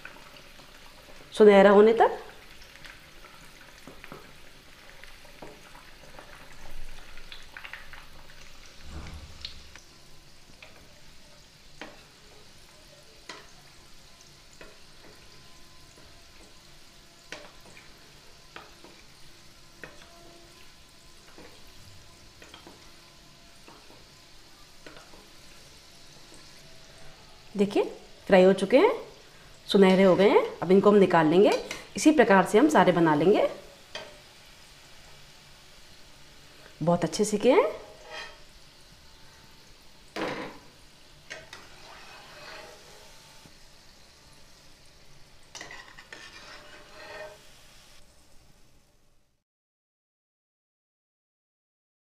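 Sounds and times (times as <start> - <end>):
oil sizzling with pops: 0.0 - 49.0
wooden spatula stirring oil: 2.2 - 27.0, 37.4 - 38.8, 41.2 - 43.2, 45.4 - 47.6.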